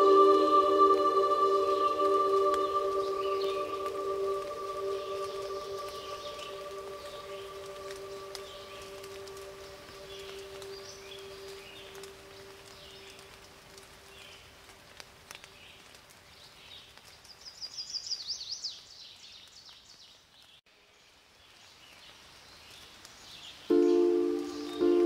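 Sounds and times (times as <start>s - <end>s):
music: 0.0s - 10.7s, 23.7s - 25.0s
birds chirping and calling: 0.0s - 12.0s.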